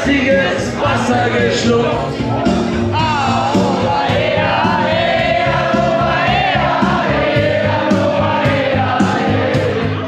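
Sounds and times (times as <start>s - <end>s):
group of voices singing: 0.0s - 10.0s
steady beat: 2.4s - 10.0s.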